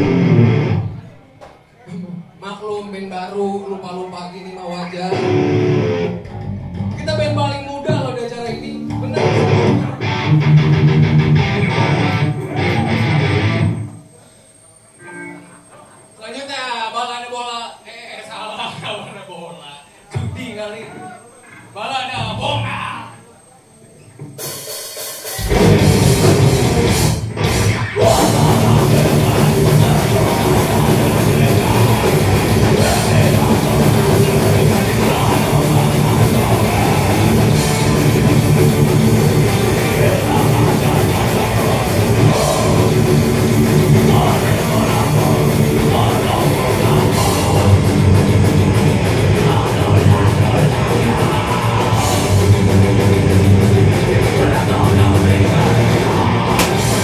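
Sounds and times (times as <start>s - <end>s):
metal band playing live: 0.0s - 0.9s, 5.1s - 7.0s, 8.7s - 13.9s, 24.4s - 57.0s.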